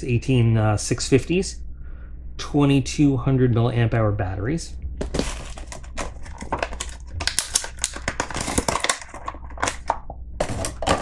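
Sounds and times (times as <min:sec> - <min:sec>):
plastic bag crinkling: 0:05.0 - 0:11.0.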